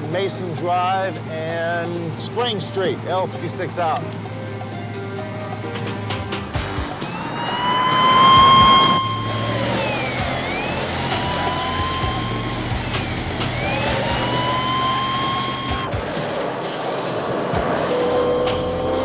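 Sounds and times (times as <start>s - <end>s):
car engine and tyre noise: 0.0s - 19.0s
police siren wailing: 6.4s - 16.7s, 17.3s - 19.0s.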